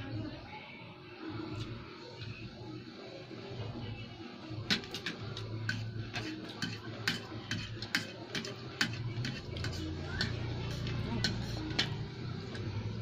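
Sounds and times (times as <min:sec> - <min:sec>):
fork and knife scraping a plate: 0:04.7 - 0:12.7.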